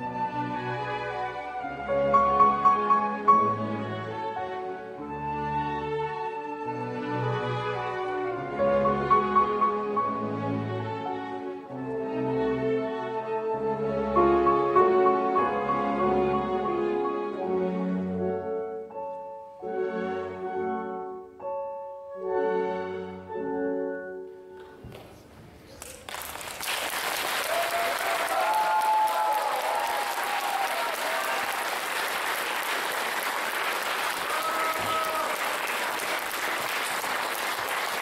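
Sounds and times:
slow instrumental music: 0:00.0 - 0:25.0
audience applause: 0:25.7 - 0:38.0
audience calls: 0:26.7 - 0:38.0.

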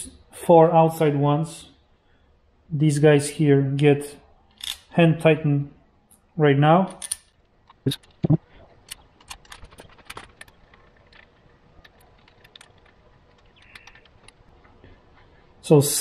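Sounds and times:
metal bolts clicking: 0:04.5 - 0:04.9, 0:06.9 - 0:08.2.

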